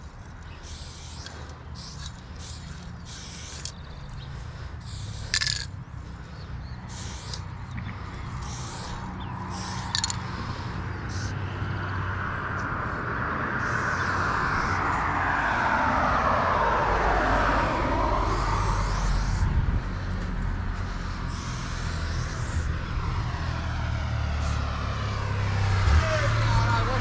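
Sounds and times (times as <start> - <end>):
passing vehicle rumble: 0.0 - 27.0
spray-paint can hissing: 0.4 - 3.9, 4.8 - 5.7, 6.8 - 7.5, 8.4 - 11.4, 13.6 - 14.8, 18.2 - 19.5, 21.3 - 22.7.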